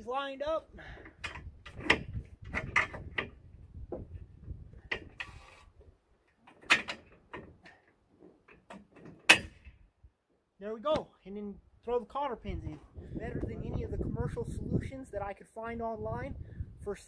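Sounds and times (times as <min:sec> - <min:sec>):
metal clicks and knocks: 0:01.0 - 0:05.4, 0:06.2 - 0:09.8.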